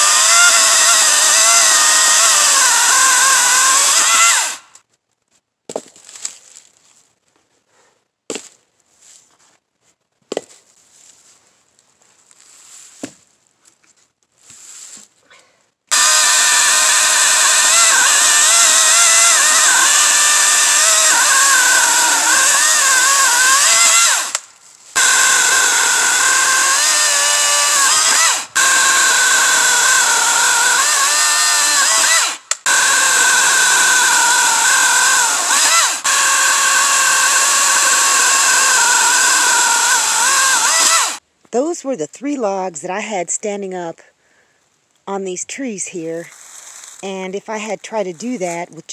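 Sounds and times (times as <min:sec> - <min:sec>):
electric chainsaw cutting log: 0:00.0 - 0:04.7, 0:15.9 - 0:41.2.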